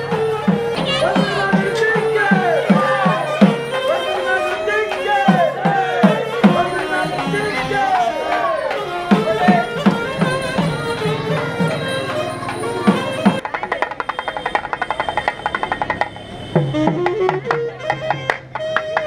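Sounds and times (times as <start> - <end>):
reed pipe wavering melody: 0.0 - 13.4
fast barrel drum drumming: 9.0 - 18.2.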